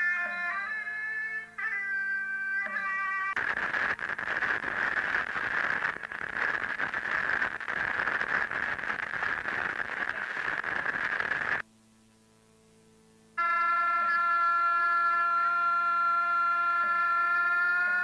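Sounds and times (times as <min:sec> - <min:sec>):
faint steady hum: 0:00.0 - 0:18.0
harsh crackling static: 0:03.3 - 0:13.5.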